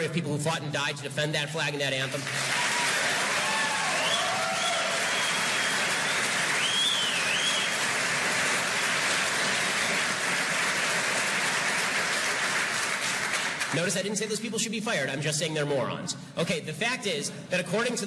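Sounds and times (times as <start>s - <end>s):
audience applauding: 2.2s - 13.8s
person whooping: 2.6s - 5.7s.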